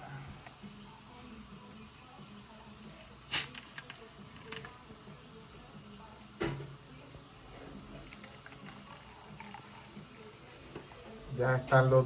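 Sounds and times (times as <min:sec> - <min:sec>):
soda bottle opening hiss: 0:03.0 - 0:05.3.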